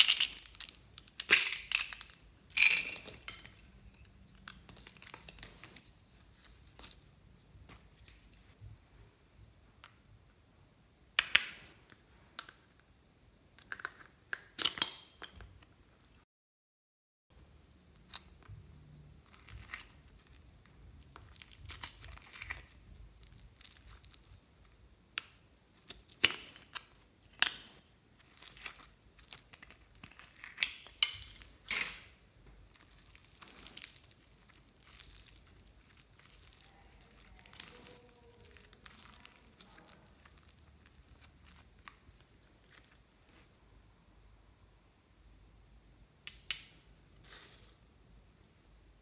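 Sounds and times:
slime squeezed by hand crackling: 0:32.7 - 0:41.8.

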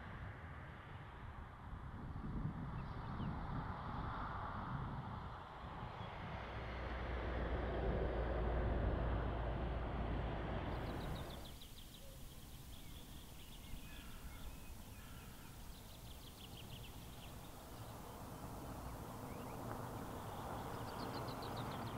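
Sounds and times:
low noisy rumble: 0:06.1 - 0:21.9
songbirds trilling: 0:10.7 - 0:21.9.

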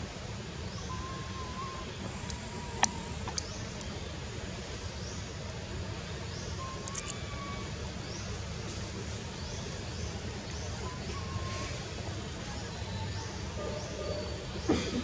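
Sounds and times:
faint whistled bird notes: 0:00.7 - 0:03.6, 0:06.4 - 0:07.7, 0:10.6 - 0:14.7.

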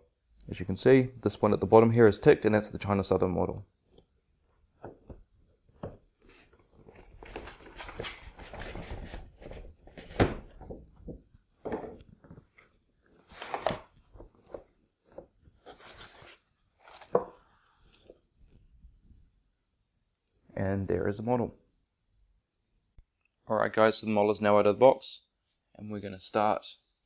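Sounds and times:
cardboard and foam rustling: 0:12.2 - 0:18.2.

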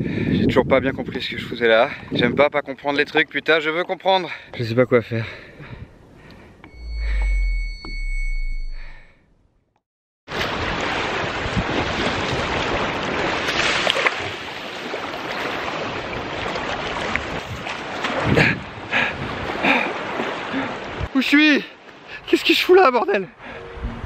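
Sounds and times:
high ringing tone: 0:06.6 - 0:09.2
deep rumble: 0:06.7 - 0:09.1
waves washing on pebble beach: 0:10.3 - 0:18.3.

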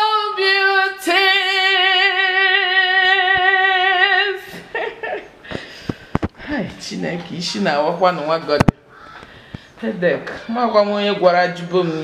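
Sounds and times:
woman singing unaccompanied: 0:00.0 - 0:05.4.

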